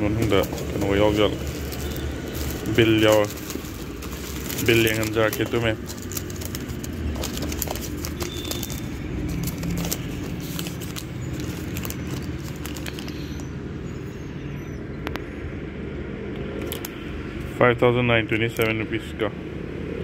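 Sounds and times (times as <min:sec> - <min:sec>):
paper and plastic rustling: 0:00.0 - 0:13.5.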